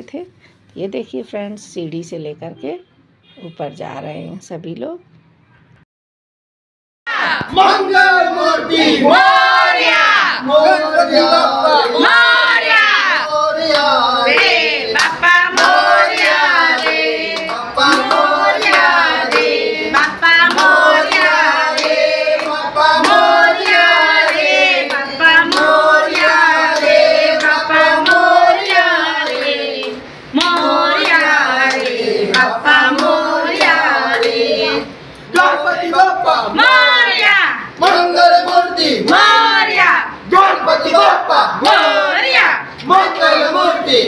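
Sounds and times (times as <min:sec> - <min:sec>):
group chanting a devotional song: 0:07.1 - 0:44.0
people clapping: 0:07.2 - 0:34.6, 0:35.2 - 0:44.0.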